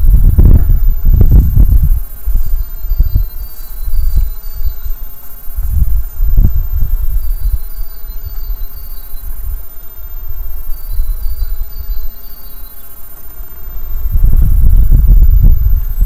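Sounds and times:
wind buffeting microphone: 0.0 - 12.4, 13.6 - 16.0.

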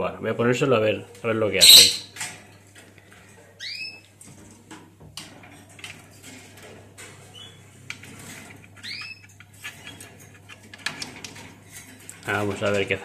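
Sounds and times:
canaries chirping: 1.4 - 2.2, 3.6 - 4.0, 6.2 - 12.9
plastic feeder rattling against cage: 4.2 - 13.0.

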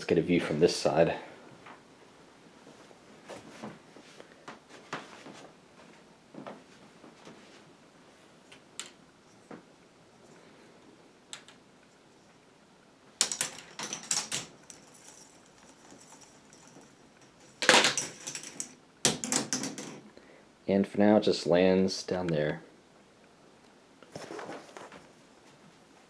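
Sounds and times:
ball clattering down plastic track: 13.2 - 20.1.

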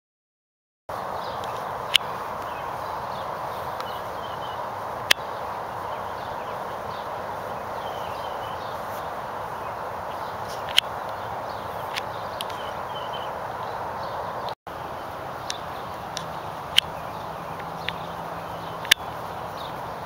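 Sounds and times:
steady rushing background noise: 0.9 - 20.0
sharp clicks: 10.6 - 11.2, 11.9 - 12.6, 15.4 - 17.0, 17.6 - 18.0, 18.8 - 19.1.

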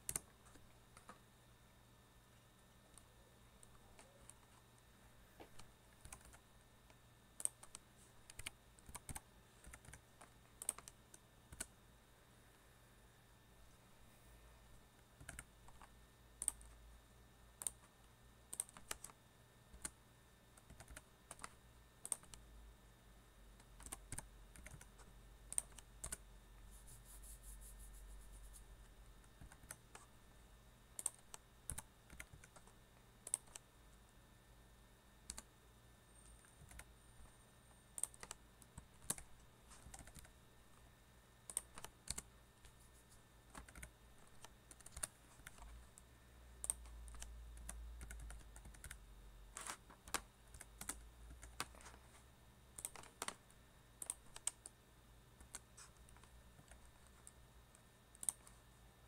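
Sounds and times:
computer keyboard typing: 0.0 - 1.2, 5.4 - 6.4, 7.4 - 11.8, 15.2 - 16.8, 17.6 - 17.9, 18.5 - 20.0, 20.6 - 22.5, 23.6 - 27.8, 29.3 - 30.1, 31.0 - 33.7, 35.2 - 35.5, 36.2 - 36.9, 37.9 - 40.4, 41.5 - 45.8, 46.6 - 52.1, 52.7 - 53.4, 54.0 - 54.8, 55.4 - 57.4, 58.1 - 58.6.

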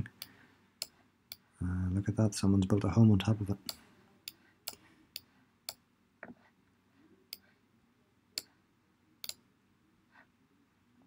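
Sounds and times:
computer mouse clicks: 3.7 - 5.8, 9.2 - 9.4.

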